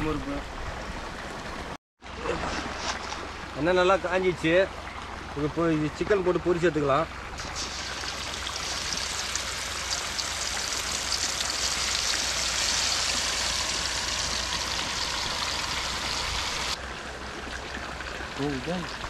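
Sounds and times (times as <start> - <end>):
chicken deep-frying in hot oil: 7.4 - 16.8.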